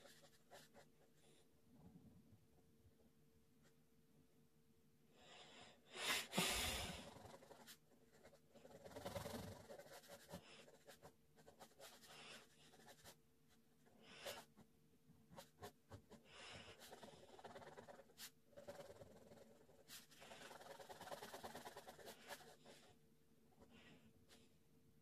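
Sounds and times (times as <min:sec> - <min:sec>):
pen scratching on paper: 0:00.0 - 0:01.1, 0:06.7 - 0:13.2, 0:13.8 - 0:14.7, 0:15.3 - 0:23.0.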